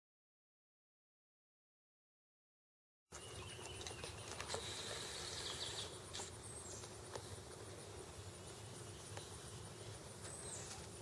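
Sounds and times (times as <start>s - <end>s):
steady hiss: 4.4s - 11.0s.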